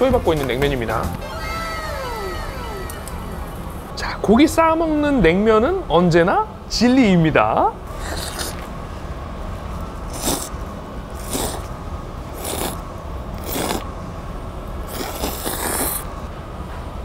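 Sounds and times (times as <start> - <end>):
low steady hum: 0.0 - 6.8
noodles slurped: 8.0 - 8.6, 10.1 - 10.5, 11.2 - 11.7, 12.4 - 12.8, 13.4 - 13.9, 14.9 - 16.1.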